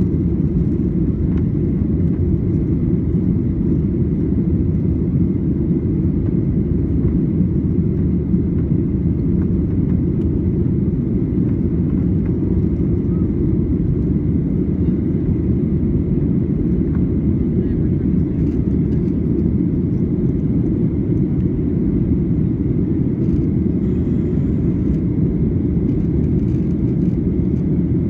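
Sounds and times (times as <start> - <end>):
jet engines rumbling: 0.0 - 28.0.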